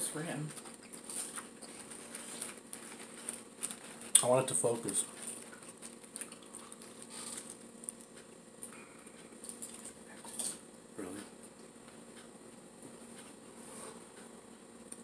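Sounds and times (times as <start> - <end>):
people crunching chips: 0.4 - 8.8.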